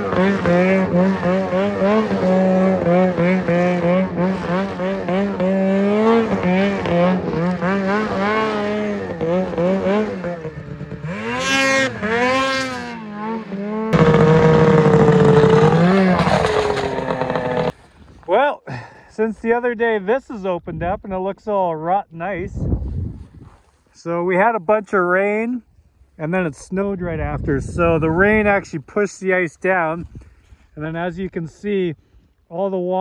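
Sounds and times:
snowmobile engine revving: 0.0 - 17.8.

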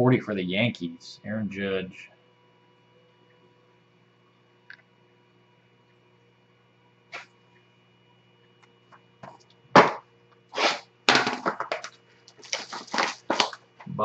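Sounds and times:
plastic shrink-wrap crinkling: 11.7 - 13.6.

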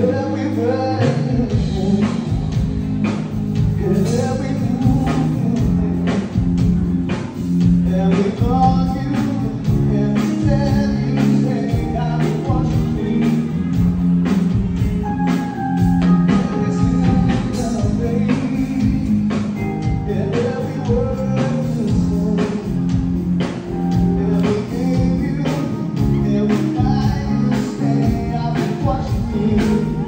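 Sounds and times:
electric guitars: 0.0 - 30.0
keyboard: 0.0 - 30.0
person singing: 0.0 - 30.0.

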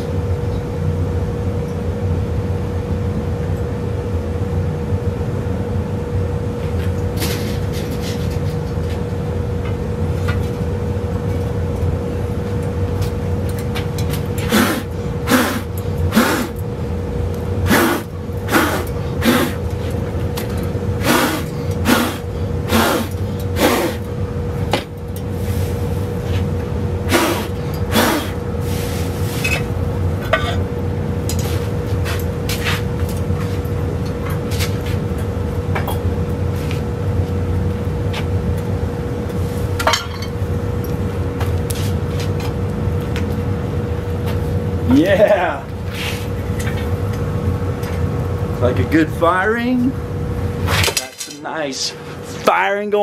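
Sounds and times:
constant hum: 0.0 - 53.0
steady low roar: 14.3 - 24.7, 25.3 - 31.3.

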